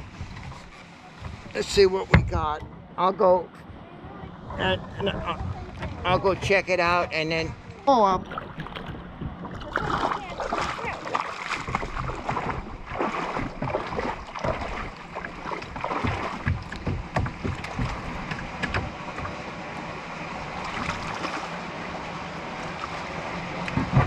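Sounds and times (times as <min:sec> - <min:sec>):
kayak scraping over stones: 0:00.0 - 0:02.1
wading through shallow water: 0:00.0 - 0:24.0.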